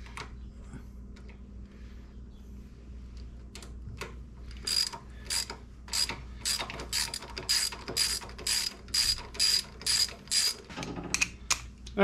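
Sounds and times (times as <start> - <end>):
socket ratchet clicking: 4.7 - 10.6.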